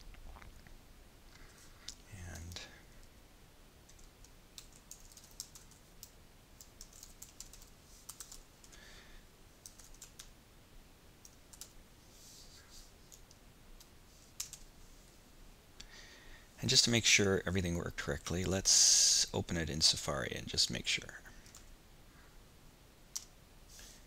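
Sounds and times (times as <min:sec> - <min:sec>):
typing on a computer keyboard: 0:03.9 - 0:08.8, 0:09.6 - 0:10.3, 0:11.2 - 0:11.8, 0:14.4 - 0:14.7, 0:23.1 - 0:23.3.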